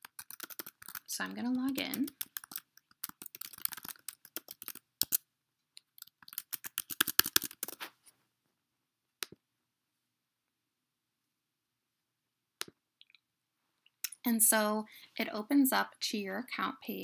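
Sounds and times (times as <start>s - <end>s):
computer keyboard typing: 0.0s - 5.2s, 5.8s - 7.8s.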